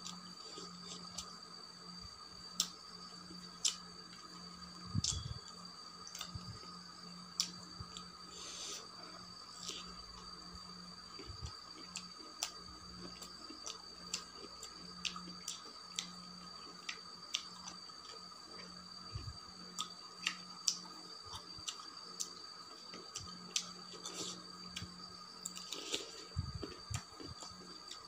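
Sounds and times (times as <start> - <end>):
faint steady hum: 0.0 - 28.0
high whine: 4.1 - 11.6.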